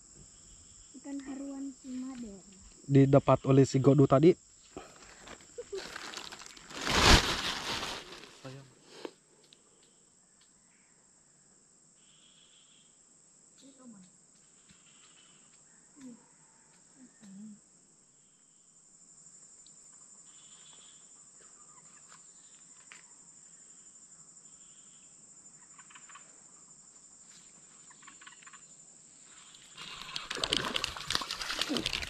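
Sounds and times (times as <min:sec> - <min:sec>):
insects shrilling: 0:03.7 - 0:09.1, 0:27.8 - 0:32.0
rustling and handling noise: 0:04.8 - 0:08.5, 0:29.8 - 0:32.0.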